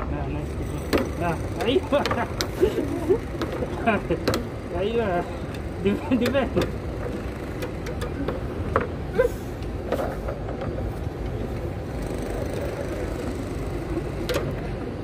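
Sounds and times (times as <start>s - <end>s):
foosball figures striking ball: 3.3s - 4.6s.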